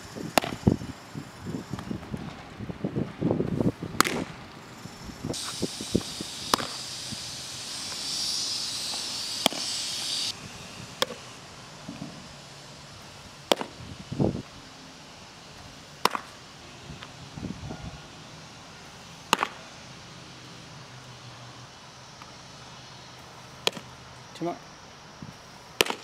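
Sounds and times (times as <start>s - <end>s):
steady hiss: 0.0s - 26.0s
baseball popping into leather mitt: 0.4s - 0.6s, 4.0s - 4.3s, 13.5s - 13.7s, 16.0s - 16.3s, 19.3s - 19.6s, 25.8s - 26.0s.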